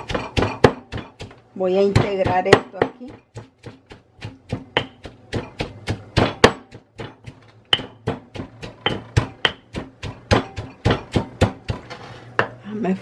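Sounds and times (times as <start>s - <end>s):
pestle pounding in stone mortar: 0.0s - 12.6s.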